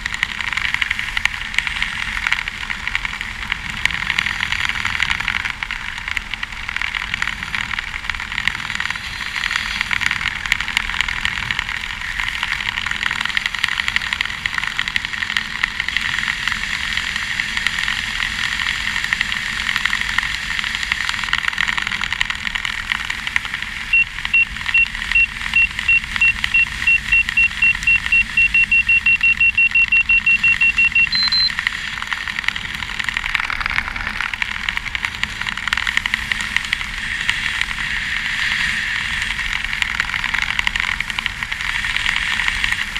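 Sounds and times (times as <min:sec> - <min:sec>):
altimeter high beeps: 0:23.9 - 0:31.6.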